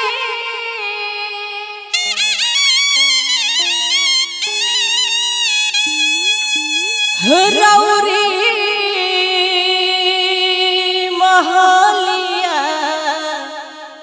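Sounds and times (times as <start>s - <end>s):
woman singing a long note: 7.2s - 14.0s.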